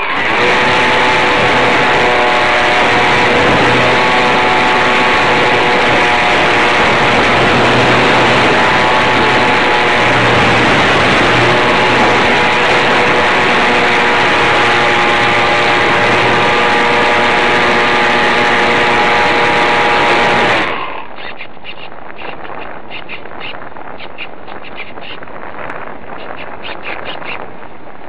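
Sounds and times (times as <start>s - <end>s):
model plane motor whine: 0.0s - 21.1s
wind buffeting microphone: 0.0s - 28.0s.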